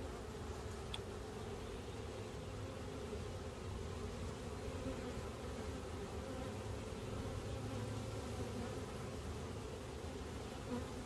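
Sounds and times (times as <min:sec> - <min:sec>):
bee swarm buzzing: 0:00.0 - 0:11.0.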